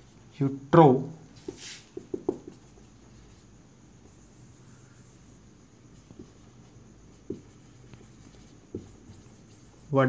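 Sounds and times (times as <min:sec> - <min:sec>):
marker scratching on whiteboard: 0:01.4 - 0:10.0
pen tapping on board: 0:01.5 - 0:02.6, 0:07.2 - 0:09.3.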